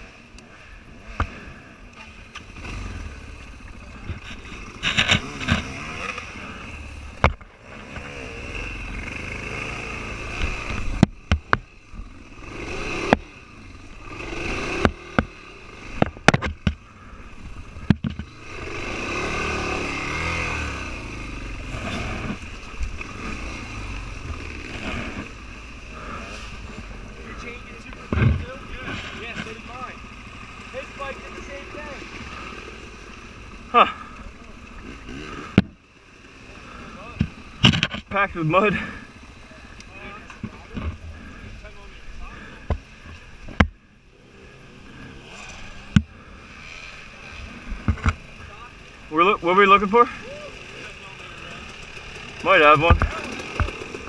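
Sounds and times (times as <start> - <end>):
dirt bike engine running: 0.0 - 54.0
bike knocking and clattering: 10.8 - 11.7, 14.8 - 16.8, 17.8 - 18.3, 51.7 - 54.0.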